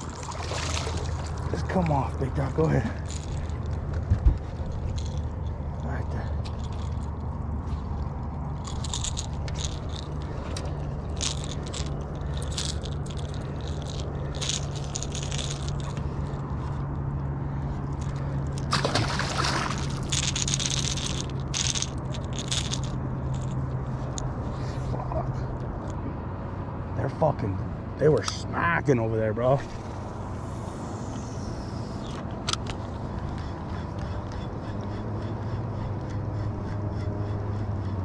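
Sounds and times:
steady low hum: 0:00.0 - 0:38.0
fishing lure hooks rattling: 0:00.1 - 0:07.4, 0:08.4 - 0:16.5, 0:17.9 - 0:24.3.

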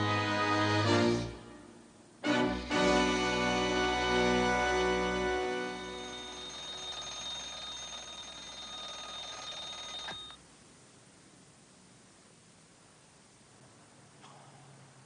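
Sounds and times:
alarm clock ringing: 0:05.6 - 0:10.4.

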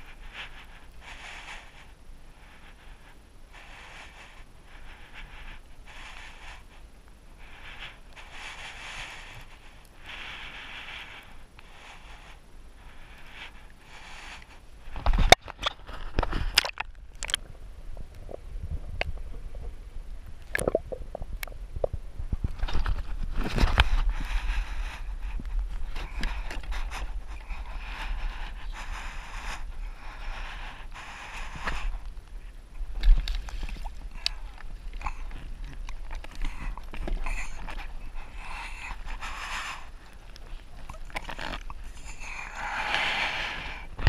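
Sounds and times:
sharp underwater clicks and knocks: 0:15.0 - 0:17.5, 0:32.9 - 0:37.9
water sloshing and splashing: 0:15.2 - 0:19.8, 0:32.8 - 0:39.0
low underwater rumble: 0:15.8 - 0:30.8
small water splashes: 0:16.5 - 0:17.5.

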